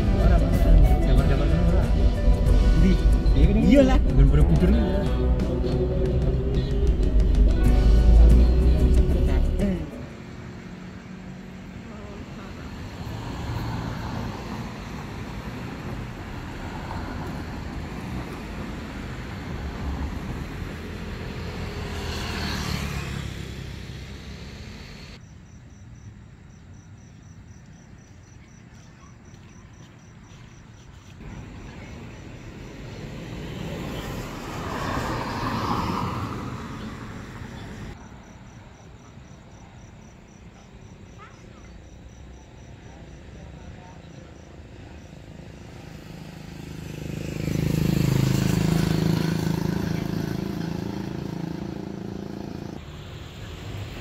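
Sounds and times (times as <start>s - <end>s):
vehicles passing on road: 0.0s - 54.0s
crickets chirping: 9.9s - 53.6s.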